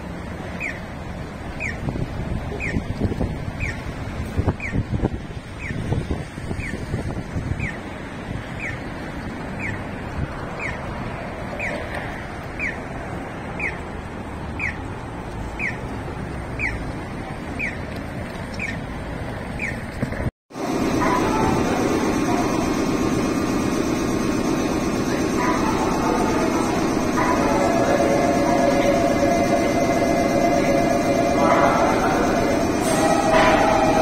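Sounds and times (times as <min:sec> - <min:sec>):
city traffic noise: 0:00.0 - 0:34.0
crossing signal chirping: 0:10.5 - 0:10.9, 0:20.6 - 0:34.0
station platform hum: 0:20.5 - 0:34.0.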